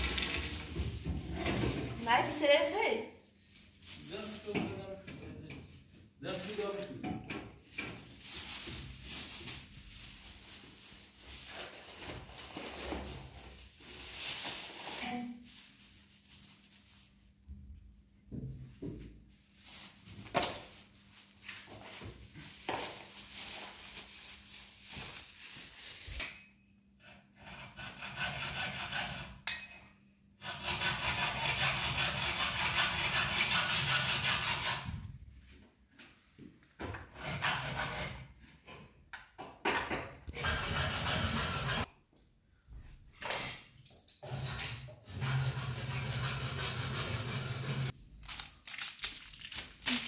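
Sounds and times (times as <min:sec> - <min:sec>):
scraping and rubbing noises: 0:00.0 - 0:02.8, 0:30.4 - 0:35.1, 0:37.0 - 0:38.6, 0:40.3 - 0:41.9, 0:45.1 - 0:48.4.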